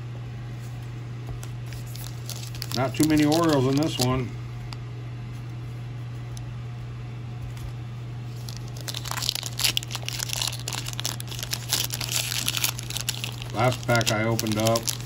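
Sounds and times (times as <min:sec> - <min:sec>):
steady low hum: 0:00.0 - 0:15.0
foil wrapper crinkling and tearing: 0:01.7 - 0:04.3, 0:08.3 - 0:15.0.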